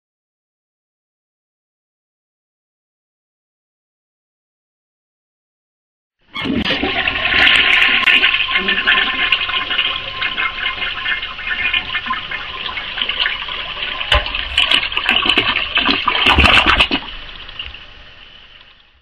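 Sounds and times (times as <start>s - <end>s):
toilet flushing: 6.3s - 19.0s.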